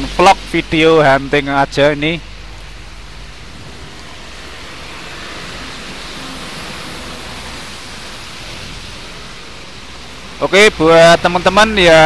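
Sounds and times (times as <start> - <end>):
rain: 0.0 - 12.0
truck tyres hissing through water: 0.0 - 12.0.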